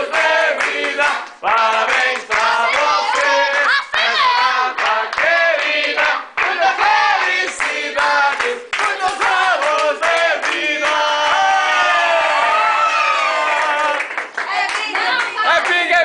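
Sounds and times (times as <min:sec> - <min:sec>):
group singing: 0:00.0 - 0:12.2
hand clapping in time: 0:07.2 - 0:11.4.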